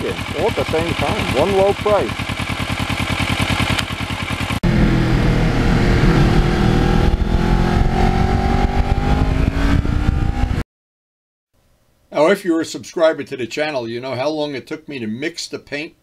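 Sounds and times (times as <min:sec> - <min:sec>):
motorcycle engine idling: 0:00.0 - 0:05.2
motorcycle engine while riding: 0:00.0 - 0:10.6
wind rush: 0:04.7 - 0:10.6.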